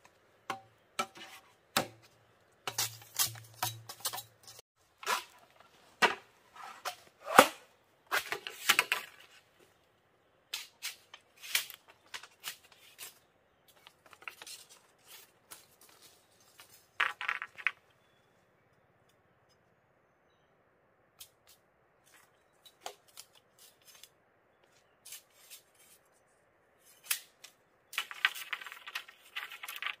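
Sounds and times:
machete chopping bamboo: 0.5 - 2.1, 7.2 - 9.0.

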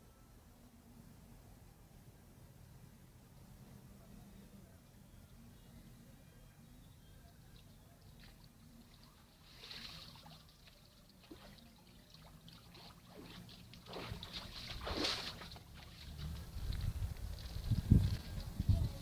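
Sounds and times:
wading splashes: 8.1 - 16.9
water streaming off a net: 9.3 - 16.8.

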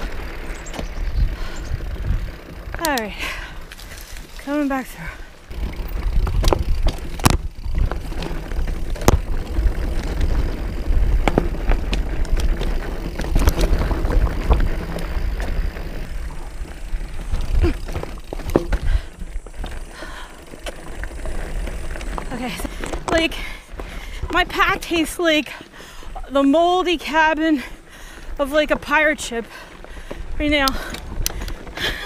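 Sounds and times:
tyres crunching over stones: 0.0 - 25.4
bike chain and frame rattling: 0.0 - 32.0.

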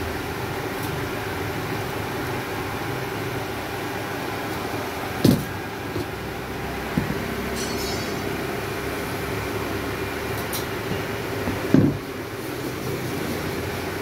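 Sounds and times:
steady machine hum: 0.0 - 12.5
knocks on a tabletop: 11.7 - 12.0.

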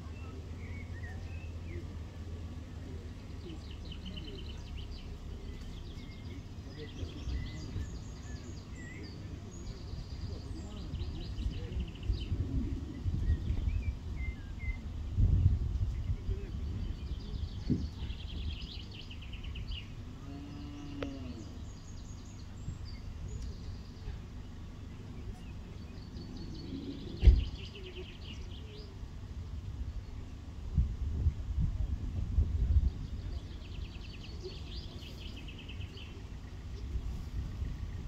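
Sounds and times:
small birds twittering: 0.0 - 38.0
wind rumble on microphone: 4.7 - 24.4, 25.0 - 38.0
cow mooing: 20.2 - 21.4.

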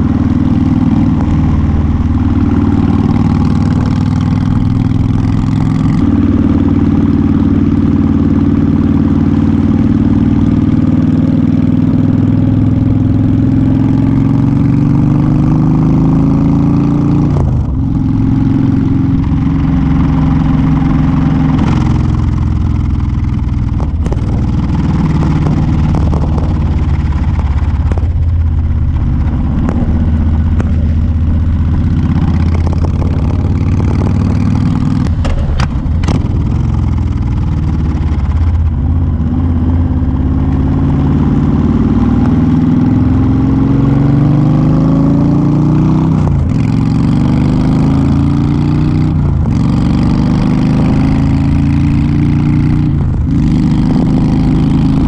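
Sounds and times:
motorcycle engine cruising: 0.0 - 55.0
wind noise: 16.1 - 44.2, 44.9 - 55.0.

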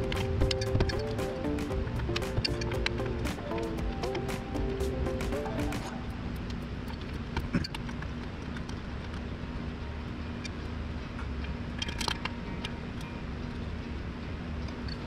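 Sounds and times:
low shop hum: 0.0 - 15.0.

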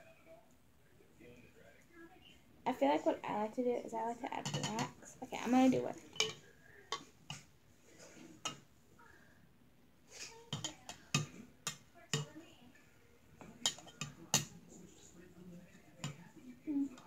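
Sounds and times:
spoon tapping on a cup: 4.4 - 5.0, 6.1 - 7.5, 10.5 - 12.4, 13.5 - 14.6.

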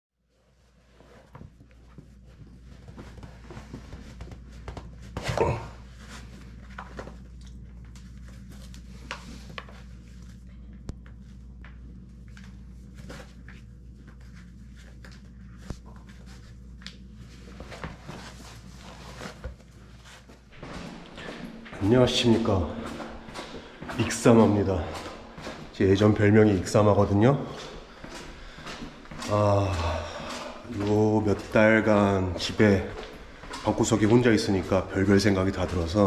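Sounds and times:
steady low hum: 0.3 - 36.0
shoe laces rustling and scuffing: 12.2 - 36.0.

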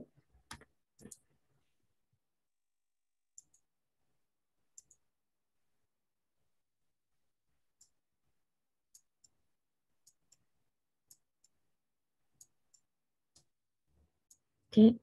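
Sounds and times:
computer mouse clicks: 0.4 - 1.3, 3.3 - 3.7, 4.7 - 5.0.

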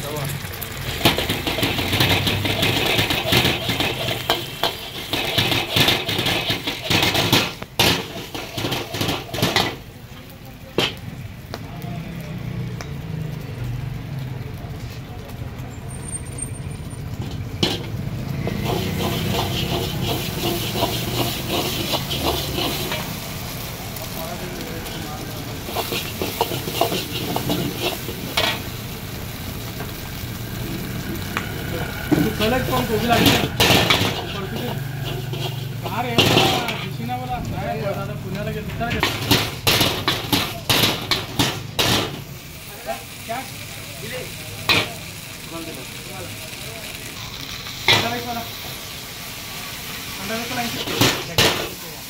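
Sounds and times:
egg sizzling in oil: 0.0 - 10.0, 15.6 - 52.0
metal ladle scraping wok: 0.9 - 9.8, 17.1 - 23.6, 24.8 - 28.7, 31.9 - 37.2, 38.6 - 42.3, 49.7 - 51.8
metal ladle clanking on a wok: 18.6 - 23.2, 33.0 - 37.0, 38.8 - 42.2.

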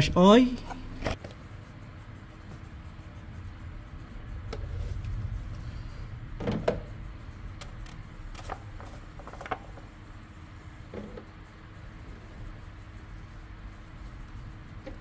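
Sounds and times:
low rumble: 3.4 - 7.6.

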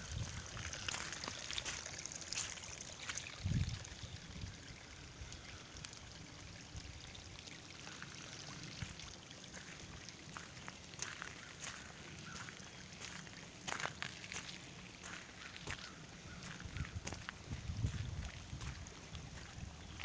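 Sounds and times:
water trickling over gravel: 0.0 - 20.0.

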